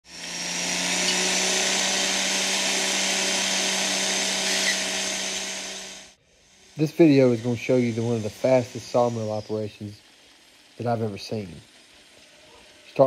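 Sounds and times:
machinery running: 0:00.0 - 0:13.0.

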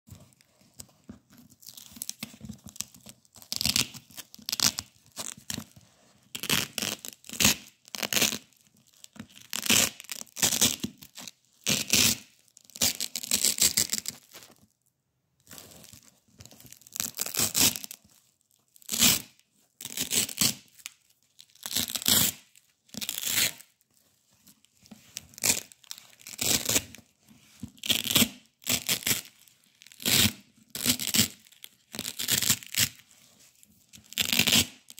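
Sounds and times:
velcro tape ripping: 0:03.5 - 0:05.4, 0:06.4 - 0:08.5, 0:09.4 - 0:14.4, 0:16.9 - 0:18.0, 0:18.8 - 0:20.8, 0:21.5 - 0:23.7, 0:25.4 - 0:26.9, 0:27.8 - 0:33.0, 0:34.1 - 0:34.9.

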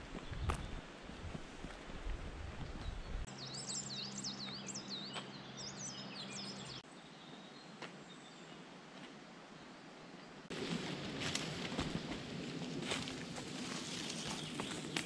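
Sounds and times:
songbird singing: 0:00.0 - 0:01.0, 0:02.6 - 0:08.8, 0:13.8 - 0:15.0
footsteps on gravel: 0:10.5 - 0:15.0.

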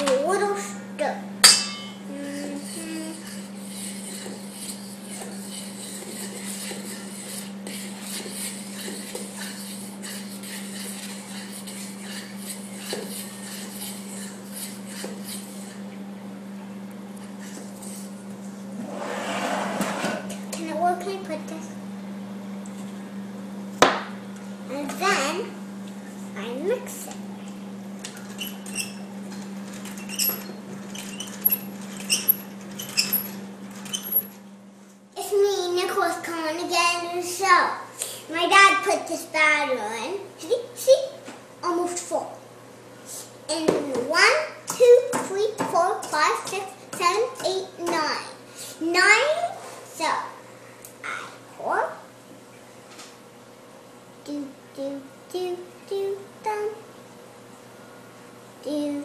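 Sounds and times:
steady low hum: 0:00.0 - 0:59.0
egg beater gears squeaking: 0:28.2 - 0:29.1, 0:29.7 - 0:34.4.

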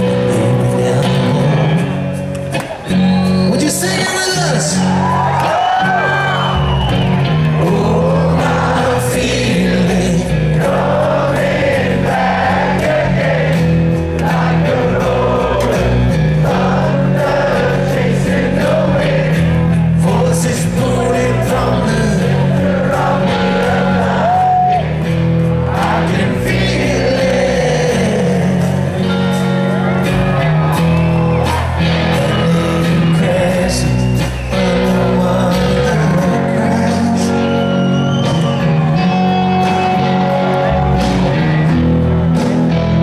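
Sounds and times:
man singing: 0:00.0 - 0:02.1, 0:07.5 - 0:13.4, 0:14.3 - 0:24.8, 0:25.7 - 0:29.4, 0:32.0 - 0:38.6
rock band playing: 0:00.0 - 0:43.0
crowd singing along: 0:07.4 - 0:30.0, 0:31.2 - 0:43.0.

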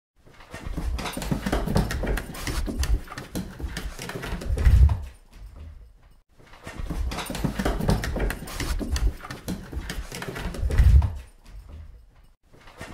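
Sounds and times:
dog paws on wooden stairs: 0:00.2 - 0:12.9.

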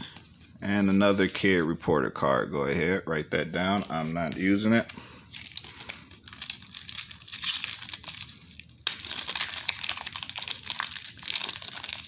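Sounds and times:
foil wrapper crinkling: 0:04.0 - 0:12.0.

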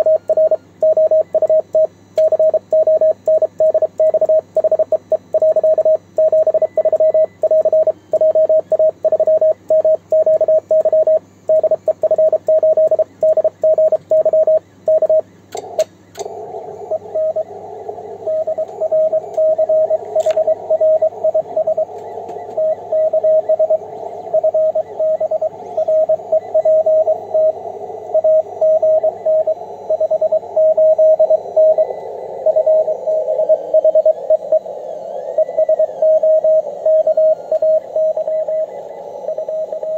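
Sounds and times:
morse code sidetone: 0:00.0 - 0:15.2, 0:16.6 - 0:39.9
morse code through static: 0:00.0 - 0:15.2, 0:16.3 - 0:39.9
radio band hiss: 0:15.6 - 0:39.9
receiver clicks: 0:20.1 - 0:20.5.

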